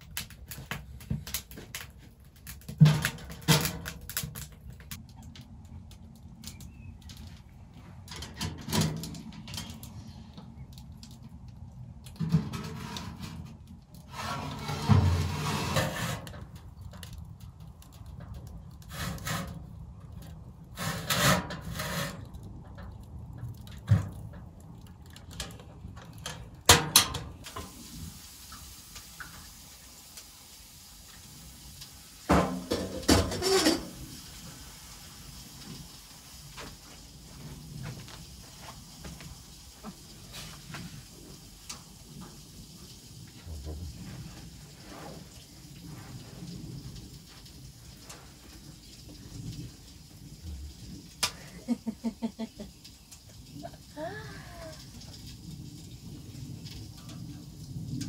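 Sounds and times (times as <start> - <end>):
burst of clatter: 0.0 - 5.4.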